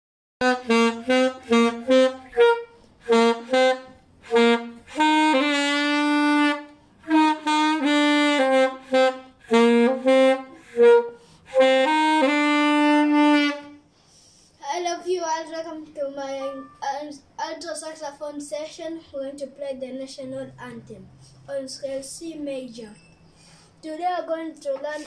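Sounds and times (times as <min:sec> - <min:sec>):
alto saxophone melody: 0:00.4 - 0:13.9.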